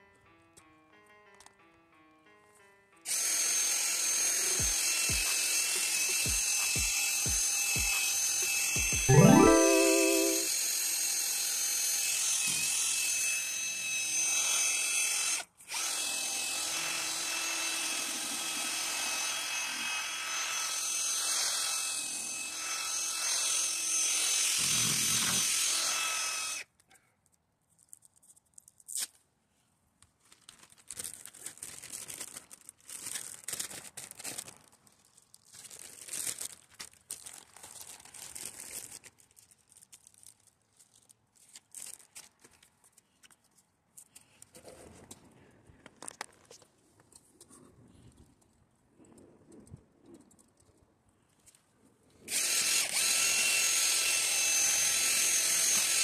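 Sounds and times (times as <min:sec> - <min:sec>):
sanding pad whining on plastic: 0:52.9 - 0:56.0.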